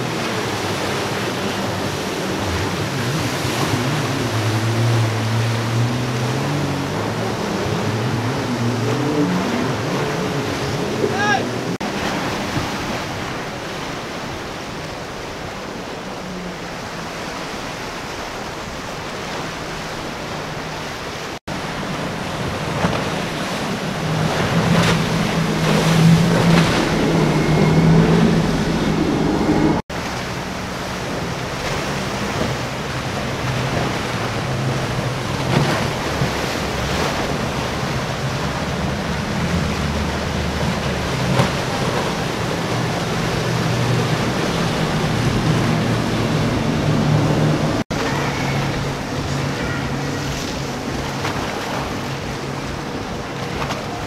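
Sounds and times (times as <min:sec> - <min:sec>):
boat engine drone: 0:00.0 - 0:54.0
waves and churning surf: 0:00.0 - 0:54.0
wind on microphone: 0:21.6 - 0:29.9.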